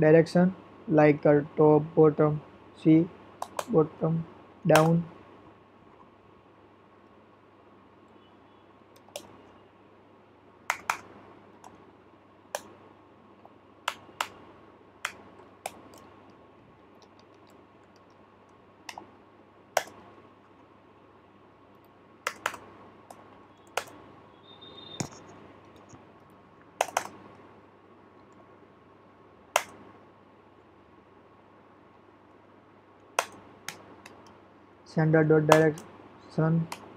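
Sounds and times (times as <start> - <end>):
computer keyboard key presses: 3.4 - 3.7, 10.7 - 11.8, 19.8 - 20.0, 22.2 - 22.6, 23.6 - 24.0, 26.8 - 27.3.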